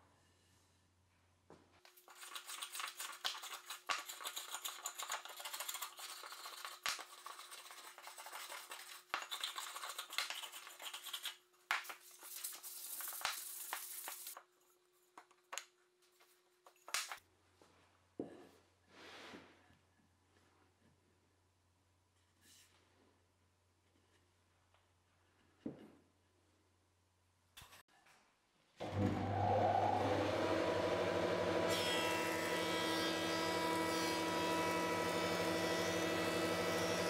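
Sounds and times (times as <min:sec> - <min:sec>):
plane shaving wood: 0:28.8 - 0:37.0.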